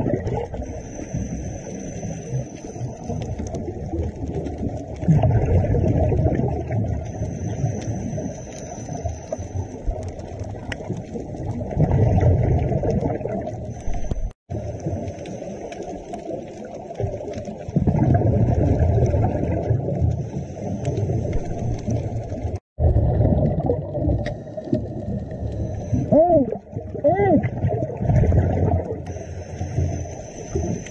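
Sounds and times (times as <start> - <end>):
underwater bubbles gurgling: 0.0 - 30.9
thin high whine: 0.5 - 3.4, 7.0 - 9.8, 29.1 - 30.9.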